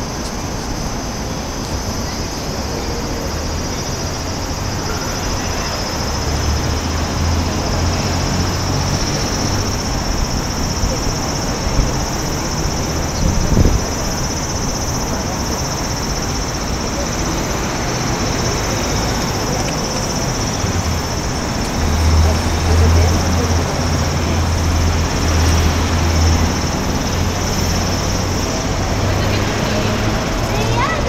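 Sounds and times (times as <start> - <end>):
wind buffeting microphone: 8.5 - 17.4.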